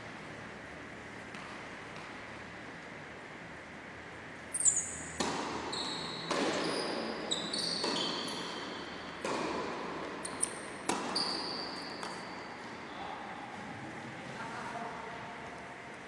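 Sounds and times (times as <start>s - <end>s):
ball bouncing on court: 1.3s - 2.2s, 4.6s - 12.3s
shoes squeaking on floor: 4.5s - 9.2s, 10.1s - 13.0s
tennis ball hits: 5.1s - 11.2s.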